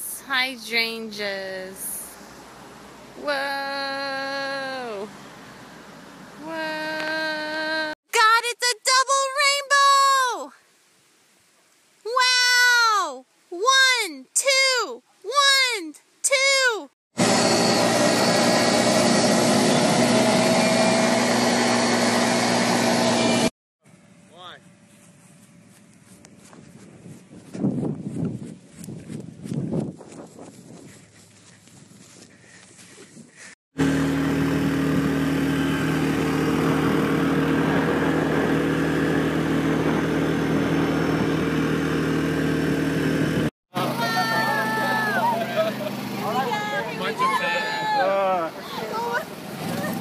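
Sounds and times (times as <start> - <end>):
quad bike engine hum: 3.2 - 8.0, 17.2 - 26.1, 33.8 - 50.0
wind rushing on microphone: 26.5 - 31.2
motorcycle engine running: 33.8 - 47.2.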